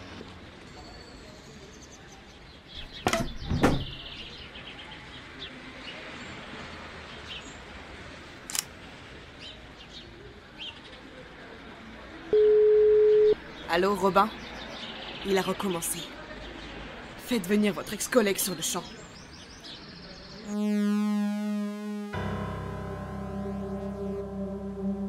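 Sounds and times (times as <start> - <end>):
songbirds chirping faintly: 0.5 - 12.3, 13.3 - 20.6
sharp knocks: 2.8 - 4.0
loud steady phone tone: 12.3 - 13.4, 20.5 - 25.0.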